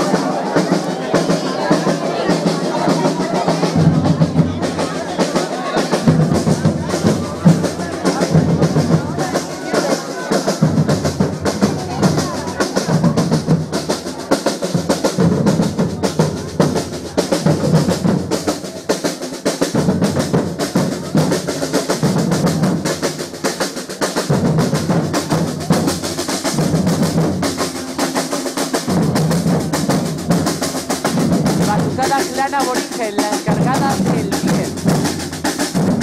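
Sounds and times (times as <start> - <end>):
samba percussion group: 0.0 - 36.0.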